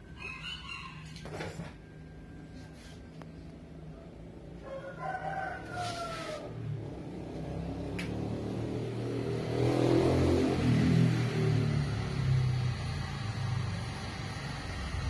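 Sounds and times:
rooster crowing: 0:00.0 - 0:01.8, 0:04.6 - 0:06.8
vehicle engine rumble: 0:05.4 - 0:09.6, 0:10.2 - 0:15.0.

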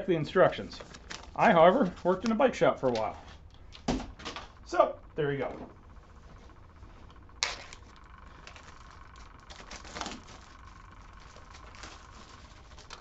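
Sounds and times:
plastic packaging crinkling: 0:00.0 - 0:03.6, 0:07.4 - 0:13.0.

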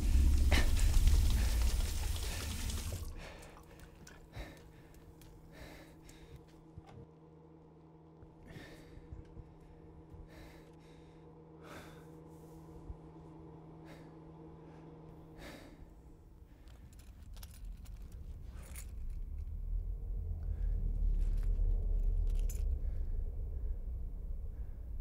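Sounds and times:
man breathing heavily: 0:00.0 - 0:06.6, 0:08.2 - 0:12.9, 0:13.7 - 0:17.6
deep low rumble: 0:00.0 - 0:07.1, 0:17.2 - 0:25.0
steady low hum: 0:00.0 - 0:25.0.

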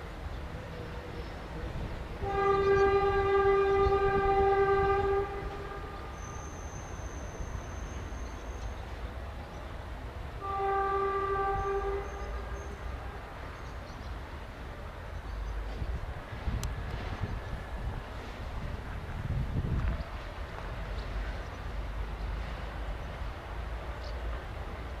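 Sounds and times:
single-tone horn blasts: 0:02.2 - 0:06.6, 0:10.4 - 0:12.9.

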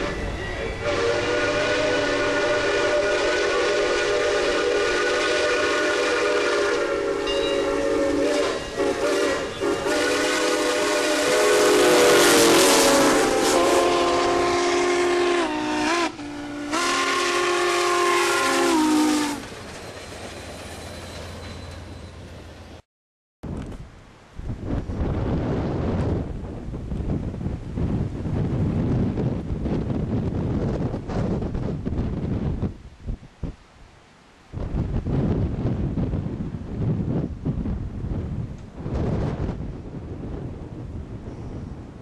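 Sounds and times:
steam locomotive chime whistle: 0:00.0 - 0:19.5, 0:20.2 - 0:22.5
locomotive steam hiss: 0:00.0 - 0:21.9.

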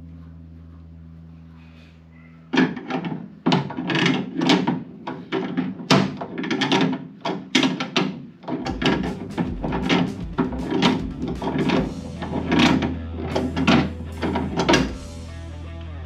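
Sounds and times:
hand tool working spring compressor: 0:02.6 - 0:15.0
low rumble: 0:08.7 - 0:16.0.

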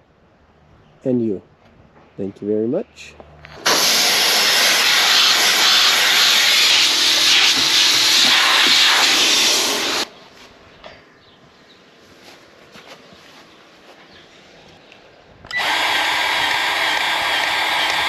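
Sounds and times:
air hissing under pressure: 0:03.6 - 0:10.1, 0:15.5 - 0:18.0.

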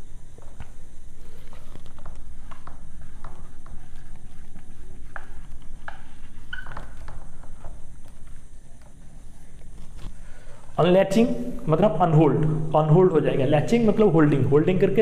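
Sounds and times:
steady low hum: 0:00.0 - 0:15.0
marker squeaking on whiteboard: 0:01.4 - 0:10.1.

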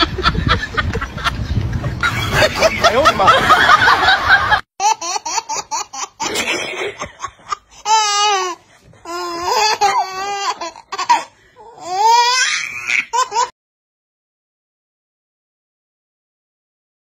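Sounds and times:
baby laughing: 0:04.8 - 0:13.5.

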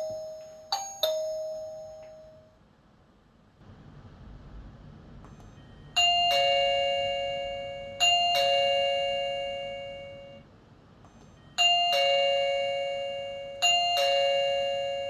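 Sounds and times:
electronic doorbell ding-dong chime: 0:00.0 - 0:02.6, 0:05.5 - 0:10.4, 0:11.2 - 0:15.0.

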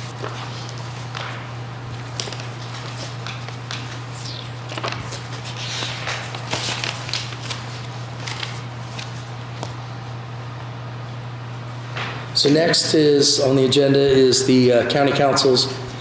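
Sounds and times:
paper rustling and crinkling: 0:00.0 - 0:09.8
steady low hum: 0:00.0 - 0:16.0.

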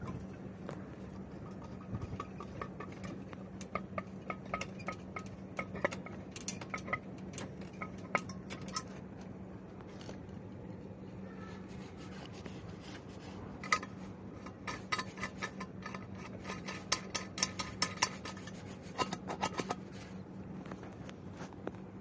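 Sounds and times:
light metallic clicks and clinks: 0:01.2 - 0:09.0.

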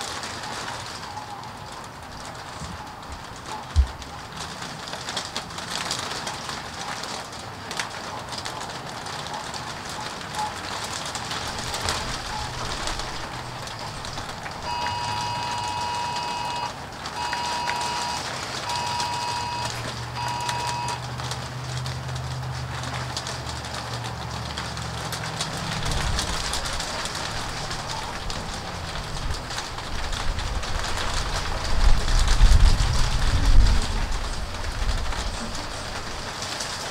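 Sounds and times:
fine crackles: 0:00.0 - 0:36.9
rain pattering: 0:00.0 - 0:36.9
electronic beeping tone: 0:14.6 - 0:21.0.

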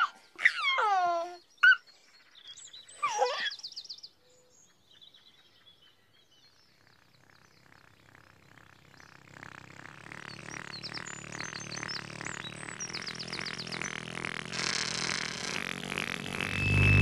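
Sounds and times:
baby giggling: 0:00.0 - 0:01.8
birdsong chirps: 0:00.0 - 0:17.0
low buzzing pulsing drone: 0:06.5 - 0:17.0.

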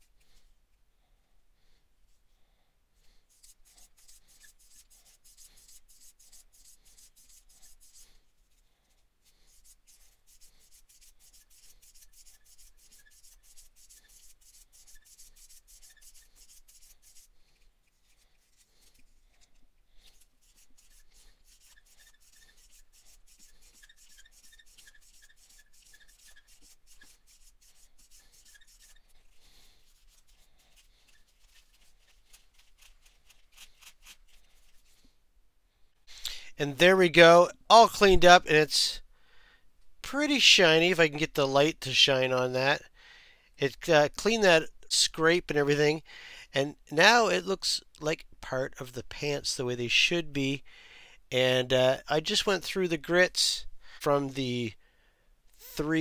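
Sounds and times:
nail file rubbing plastic: 0:03.2 - 0:08.6, 0:09.2 - 0:35.1.

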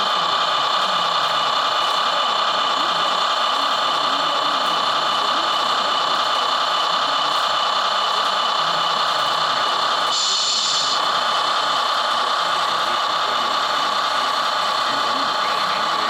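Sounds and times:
model machines whirring: 0:00.0 - 0:16.0
sharp high hiss: 0:10.1 - 0:11.0.

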